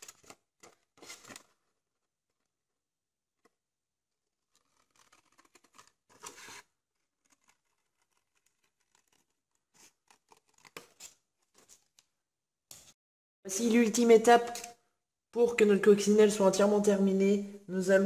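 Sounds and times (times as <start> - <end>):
paper scraping rustles: 0.0 - 2.5, 4.2 - 12.0.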